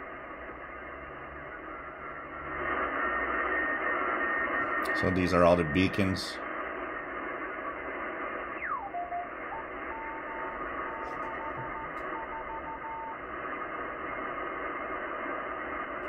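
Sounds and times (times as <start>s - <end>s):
radio band hiss: 0.0s - 16.0s
morse code tone: 8.6s - 13.2s.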